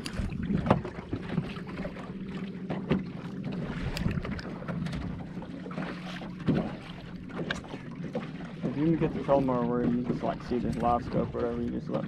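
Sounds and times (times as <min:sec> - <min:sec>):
wind on microphone: 0:00.0 - 0:01.9, 0:03.6 - 0:05.4.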